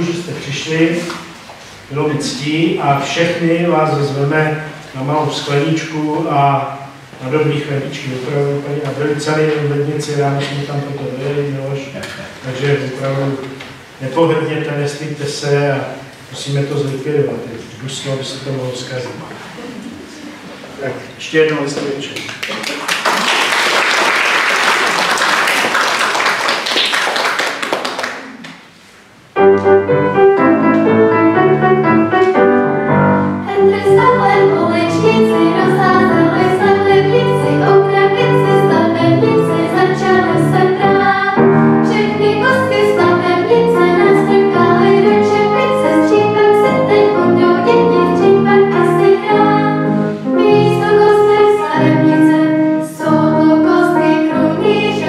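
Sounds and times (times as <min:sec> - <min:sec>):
piano accompaniment: 0:00.0 - 0:11.6, 0:29.3 - 0:55.0
audience applauding: 0:22.2 - 0:28.6
children singing: 0:33.4 - 0:55.0.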